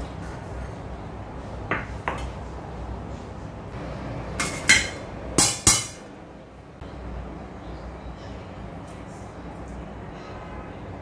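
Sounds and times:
metal bowl and strainer clinking: 4.4 - 6.0.

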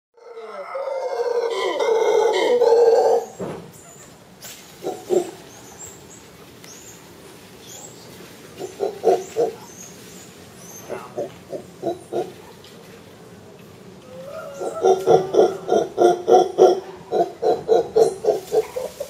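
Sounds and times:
monkey howling: 0.2 - 3.4, 4.8 - 5.4, 8.6 - 9.7, 10.7 - 12.4, 14.0 - 19.0
monkey grunting: 8.6 - 9.6, 10.8 - 12.4, 14.2 - 18.8.

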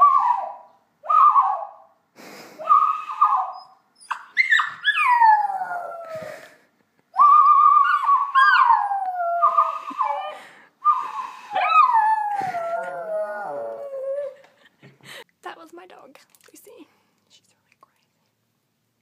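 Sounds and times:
small dog whining and howling: 0.0 - 1.8, 2.7 - 6.4, 7.2 - 14.4.

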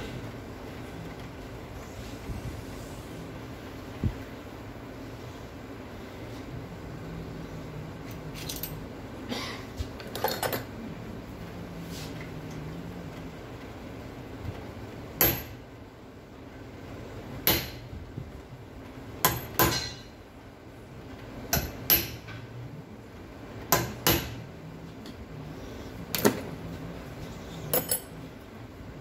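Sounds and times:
hammer striking metal: 15.2 - 15.6, 19.2 - 20.0, 21.5 - 22.3, 23.7 - 24.4.

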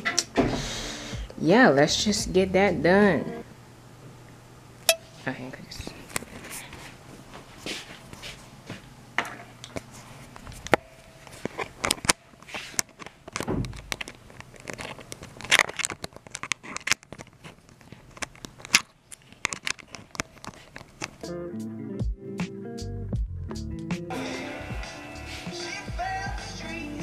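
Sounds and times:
music: 0.0 - 3.5, 21.2 - 27.0.

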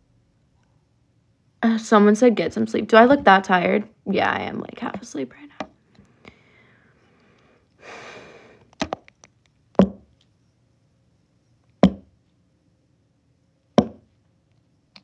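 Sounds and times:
sharp knocks on hard surface: 9.8 - 10.1, 11.8 - 12.1, 13.8 - 14.1.

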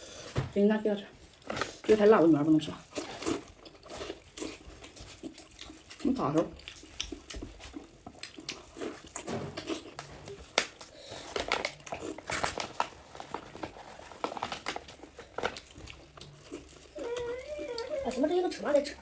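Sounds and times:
plastic gloves crinkling: 1.2 - 19.0
wet sticky squishes: 4.1 - 10.9.

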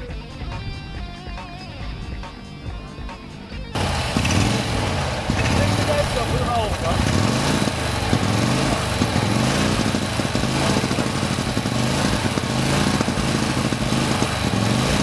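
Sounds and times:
racing car engine revving: 3.8 - 15.0.

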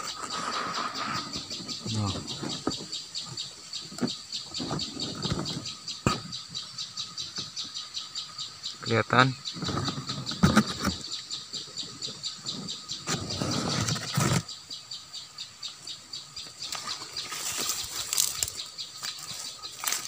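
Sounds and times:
leaves and stems rustling: 16.5 - 20.0.

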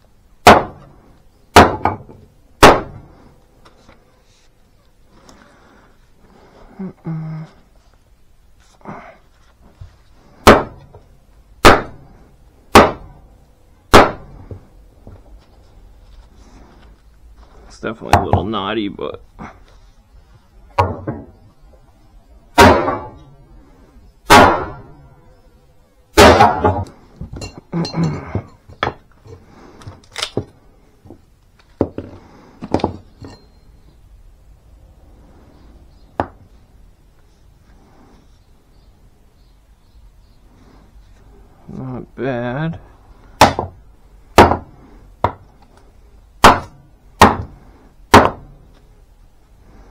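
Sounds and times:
axe chopping wood: 0.4 - 0.9, 1.5 - 3.1, 10.4 - 10.9, 11.6 - 12.0, 12.7 - 13.2, 13.9 - 14.6, 20.8 - 21.3, 22.6 - 23.2, 24.3 - 24.9, 26.2 - 27.0, 43.4 - 43.8, 44.4 - 45.5, 46.4 - 48.6
wood knocking on concrete floor: 18.1 - 18.6, 20.8 - 21.4, 28.2 - 29.0, 31.8 - 33.4, 36.2 - 36.4.

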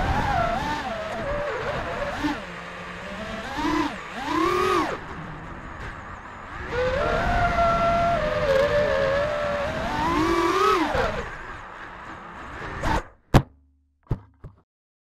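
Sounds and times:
drone motors whining: 0.0 - 13.1
sharp knock: 13.3 - 14.6.

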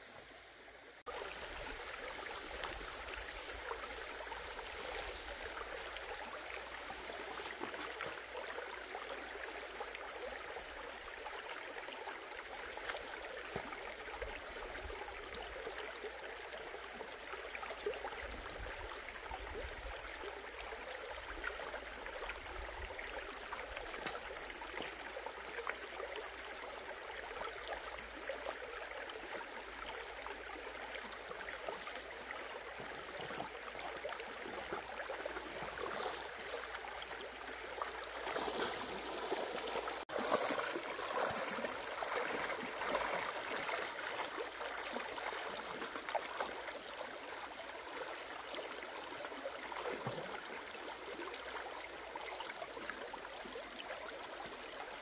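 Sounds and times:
shallow stream over stones: 0.0 - 55.0
person wading through water: 38.0 - 46.4.

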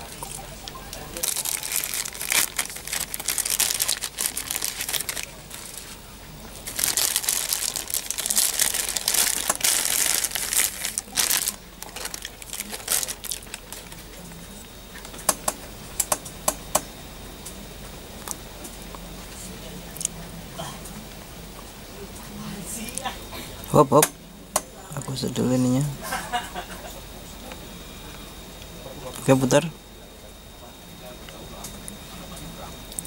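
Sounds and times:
plastic bag crinkling: 0.3 - 6.0, 6.6 - 14.2.

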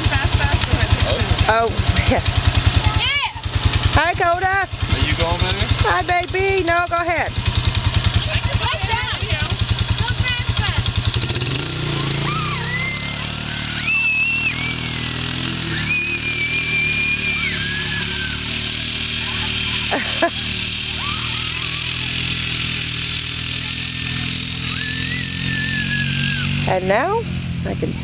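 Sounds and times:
utility vehicle engine humming: 0.0 - 28.0
long high-pitched cries: 12.1 - 19.4, 20.9 - 22.2, 24.6 - 26.7.

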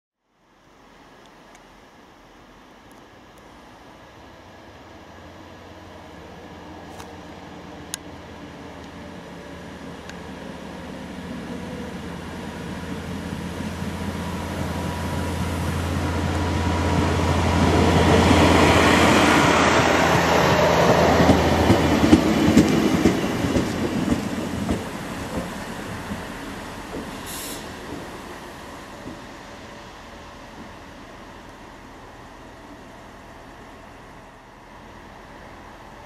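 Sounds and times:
diesel railcar engine drone: 0.4 - 36.0
train wheels clicking over rails: 13.8 - 31.6.

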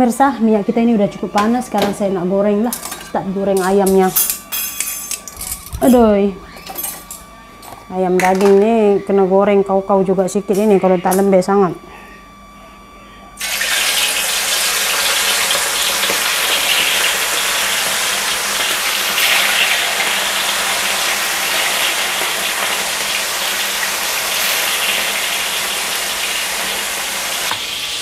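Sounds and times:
chicken deep-frying in hot oil: 13.4 - 28.0.

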